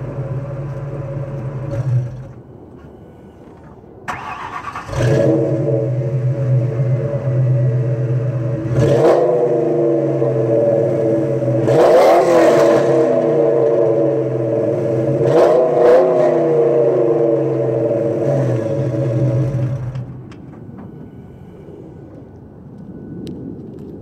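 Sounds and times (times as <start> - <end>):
car engine idling: 0.0 - 11.8
engine revving: 4.1 - 20.1.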